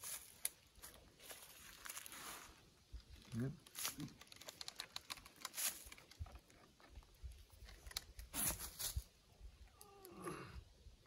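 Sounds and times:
dry leaf litter crackling: 0.0s - 6.6s
wooden bow being handled: 0.0s - 9.7s.

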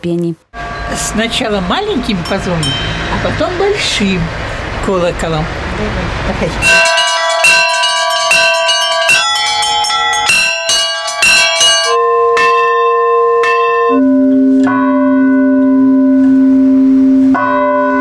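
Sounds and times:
deep big bell: 0.5s - 18.0s
small chime bells: 0.6s - 4.2s, 6.6s - 14.0s
large bells ringing: 0.6s - 5.9s, 6.5s - 18.0s.

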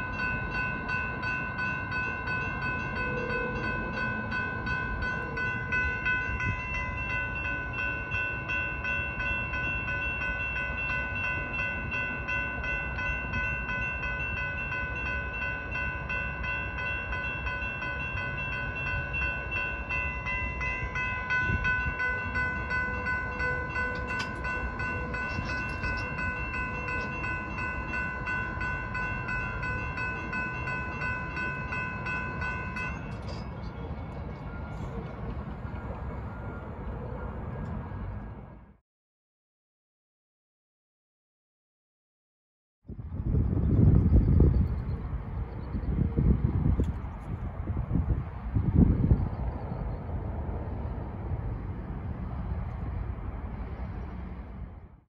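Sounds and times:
railroad crossing bell ringing: 0.0s - 38.8s.

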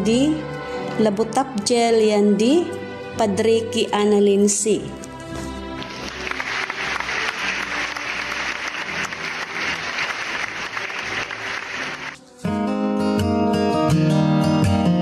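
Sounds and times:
soft background music: 0.0s - 15.0s
crowd applauding: 5.8s - 12.2s.

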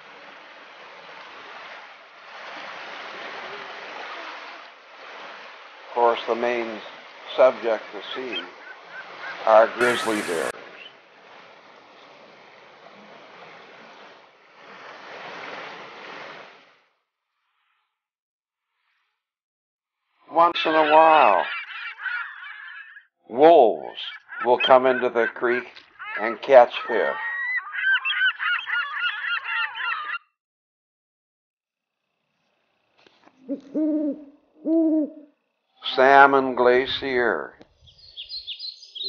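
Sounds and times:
creek water rushing over gravel: 0.0s - 16.5s
birds honking: 7.4s - 10.9s, 20.4s - 23.0s, 23.8s - 30.2s.

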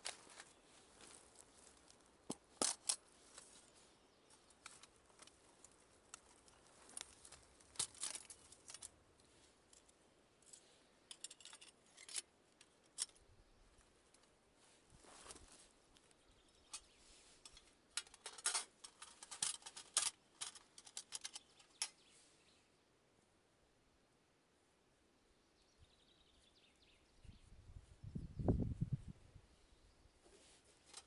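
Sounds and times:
metallic clicks and clinks: 9.8s - 12.3s, 16.7s - 22.0s.

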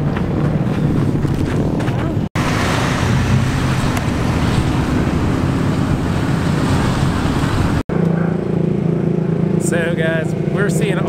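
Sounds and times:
wind noise on microphone: 0.0s - 7.8s
vehicle engine running: 0.0s - 11.0s.

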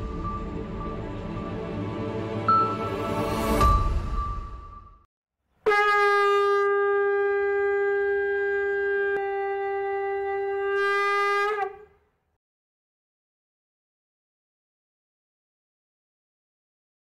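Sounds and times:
conch shell blown: 5.6s - 12.0s.

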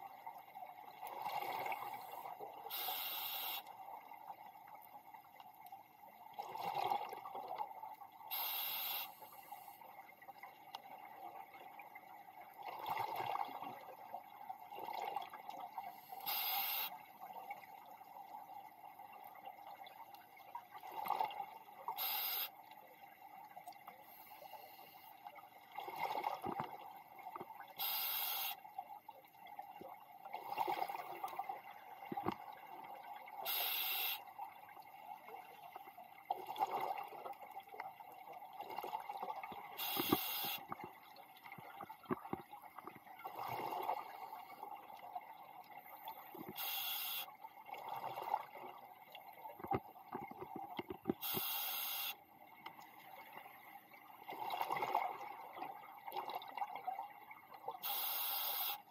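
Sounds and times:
regulator air hiss: 16.2s - 16.9s, 27.8s - 28.6s, 51.2s - 52.1s, 57.8s - 58.8s.

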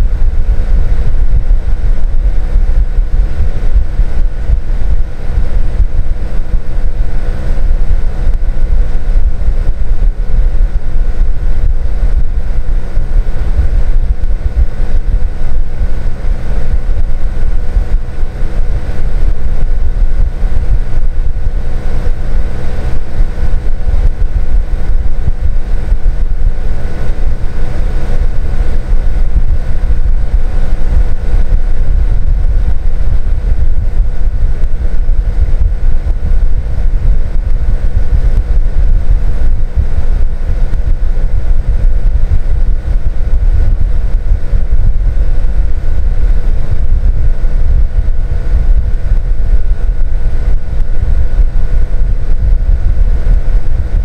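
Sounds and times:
air conditioner unit humming: 0.0s - 54.0s.

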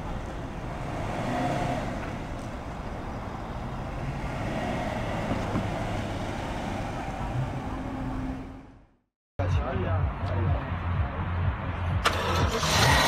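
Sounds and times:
car rolling slowly: 0.0s - 8.9s.

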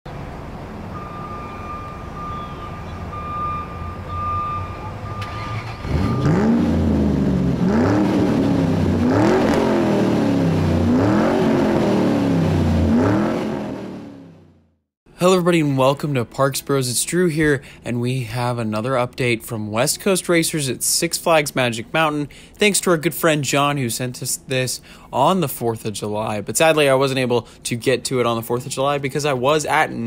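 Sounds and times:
race car engine accelerating: 5.1s - 14.5s.

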